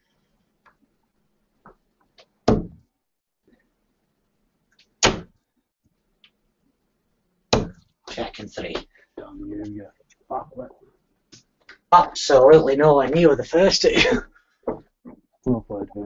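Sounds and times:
darts thudding into dartboard: 0:02.4 - 0:02.8, 0:05.0 - 0:05.3, 0:07.5 - 0:07.8.

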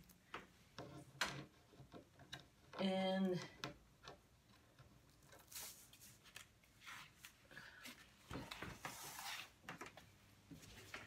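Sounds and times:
plastic sheet rustling and crinkling: 0:05.4 - 0:07.4.

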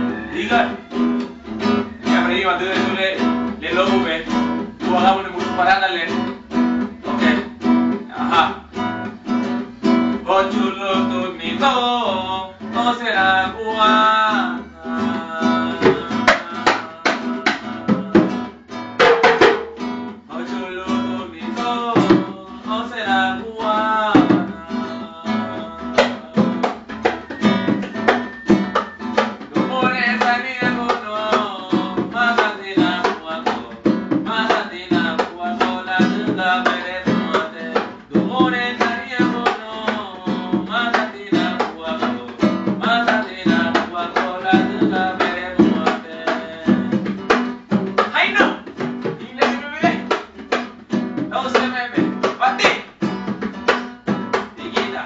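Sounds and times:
man singing: 0:00.0 - 0:09.1, 0:10.0 - 0:18.7, 0:20.2 - 0:50.6, 0:51.2 - 0:53.0, 0:53.6 - 0:55.0
acoustic guitar strumming: 0:00.0 - 0:55.0.

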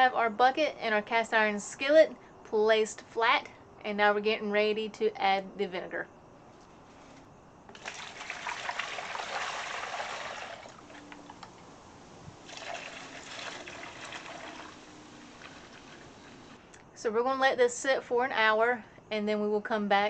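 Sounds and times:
liquid pouring into plastic tub: 0:07.7 - 0:11.4, 0:12.4 - 0:16.6.

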